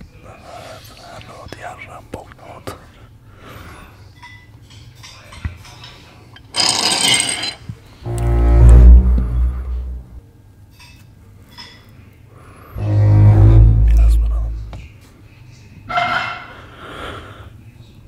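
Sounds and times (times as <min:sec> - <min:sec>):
deep roaring bass drone: 0:08.1 - 0:10.2, 0:12.8 - 0:14.8.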